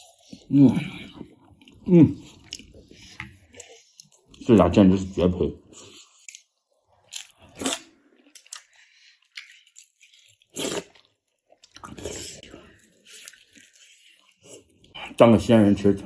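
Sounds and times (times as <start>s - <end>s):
biting and chewing bread: 5.7s - 14.9s.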